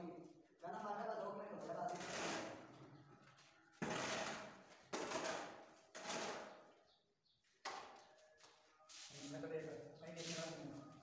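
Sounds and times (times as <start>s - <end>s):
metal shovel scraping cement: 3.8s - 6.6s.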